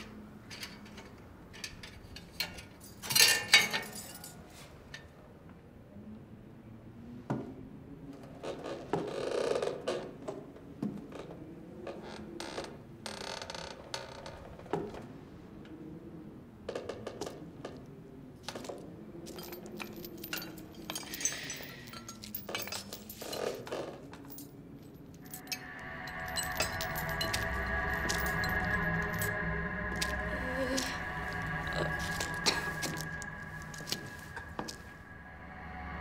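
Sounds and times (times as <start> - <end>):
iron chains clinking: 19.3 - 36.0
low wavering drone: 25.2 - 36.0
music: 25.2 - 36.0.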